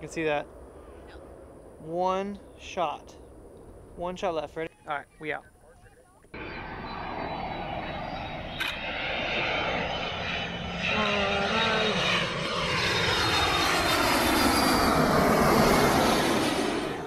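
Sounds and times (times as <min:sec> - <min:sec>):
jet airliner passing overhead: 0:00.0 - 0:17.0
sharp click: 0:08.6 - 0:08.8.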